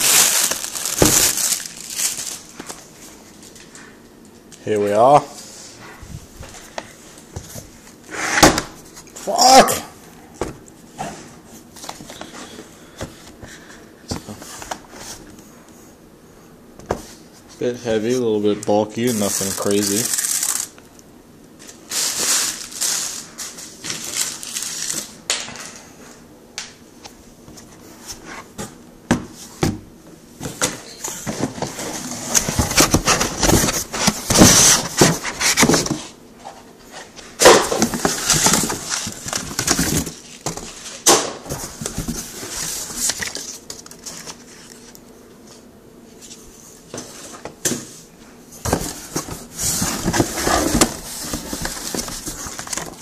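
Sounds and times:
packaging rustling and scraping: 0.0s - 3.8s, 19.0s - 20.8s, 21.6s - 25.8s, 30.4s - 45.0s, 48.6s - 53.0s.

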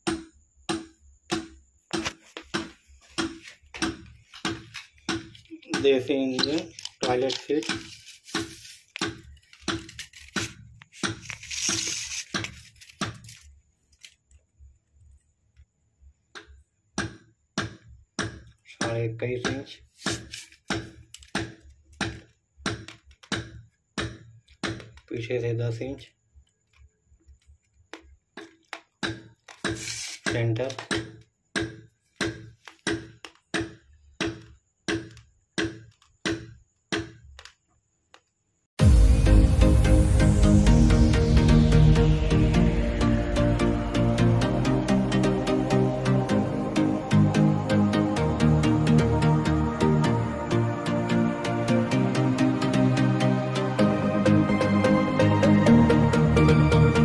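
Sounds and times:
knocks on plastic pipe: 0.0s - 6.0s
ruler scraping pipe: 6.4s - 13.5s, 19.8s - 20.7s, 29.6s - 30.4s.

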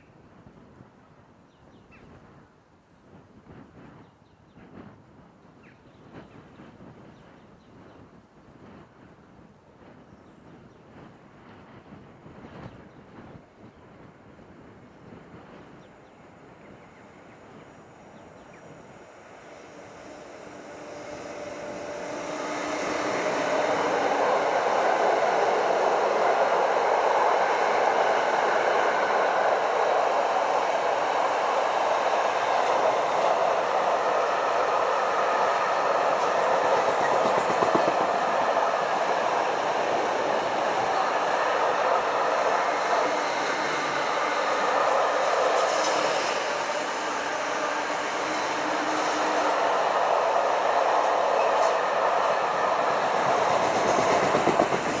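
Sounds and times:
freight train passing: 4.7s - 55.0s
wagon wheels on rails: 53.2s - 55.0s.

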